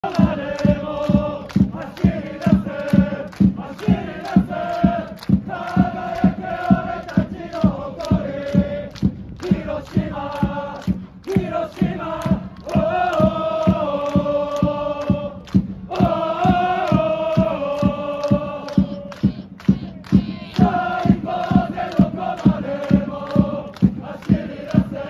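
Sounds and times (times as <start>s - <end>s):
football crowd chanting: 0.0s - 25.0s
low steady drumbeat: 0.0s - 25.0s.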